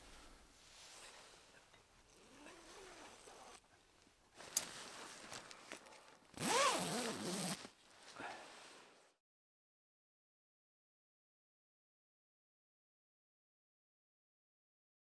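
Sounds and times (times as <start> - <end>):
tent zipper being pulled: 6.3 - 7.8.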